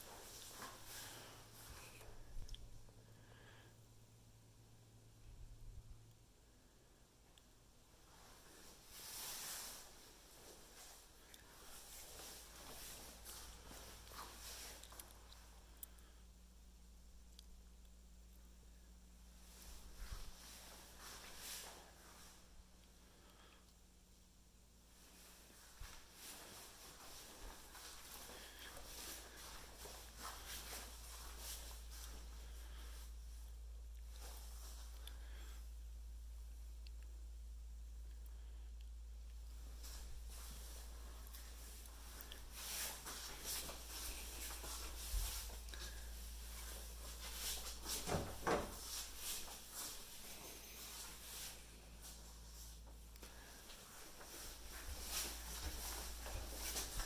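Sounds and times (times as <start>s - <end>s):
faint footsteps on tile: 0.0s - 2.3s, 25.0s - 33.0s, 39.6s - 57.0s
low steady hum: 0.0s - 57.0s.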